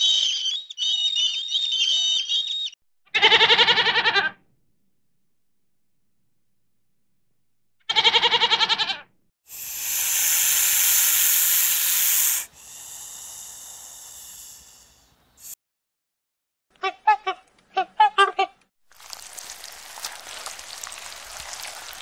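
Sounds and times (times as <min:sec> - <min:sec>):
goat bleating: 0:03.1 - 0:04.4, 0:07.9 - 0:09.0
snake hissing: 0:09.5 - 0:15.6.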